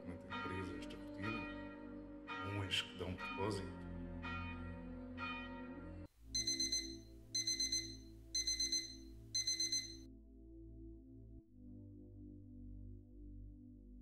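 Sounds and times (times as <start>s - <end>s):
alarm clock rapid high beeps: 6.4s - 10.0s
bell ringing: 6.4s - 10.0s.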